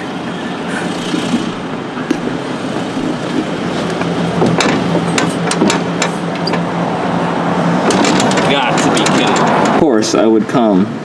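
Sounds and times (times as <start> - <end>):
glass door rattling in frame: 7.9 - 9.8.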